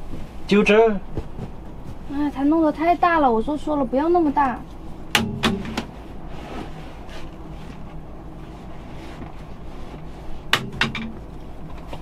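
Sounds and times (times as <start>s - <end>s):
sharp knocks: 5.1s - 5.9s, 10.5s - 11.2s.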